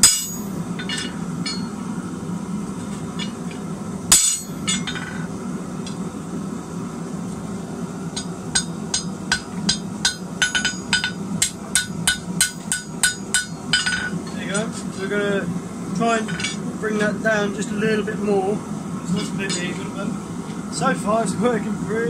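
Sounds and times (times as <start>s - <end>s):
hammer ringing on anvil: 0.0s - 1.7s, 4.1s - 5.0s, 8.2s - 14.1s.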